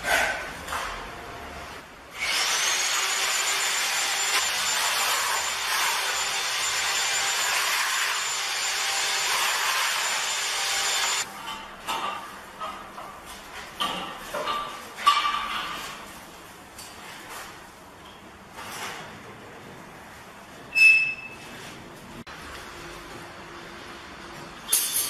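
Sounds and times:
electric power tool whining: 0:02.2 - 0:11.3.

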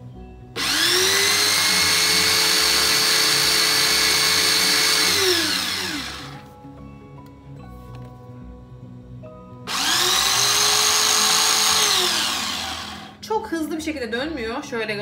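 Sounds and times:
electric grater motor whine: 0:00.6 - 0:06.4, 0:09.7 - 0:13.2.

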